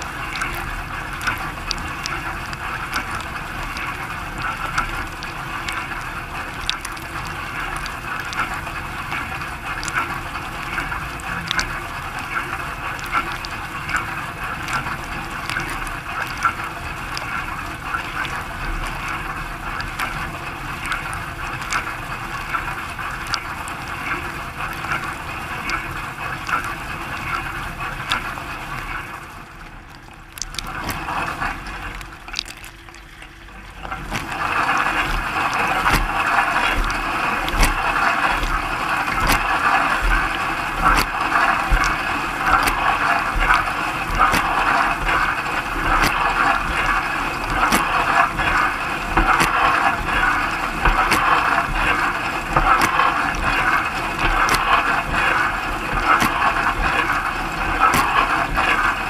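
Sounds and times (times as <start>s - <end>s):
dishwasher water jets spraying: 33.9s - 59.0s.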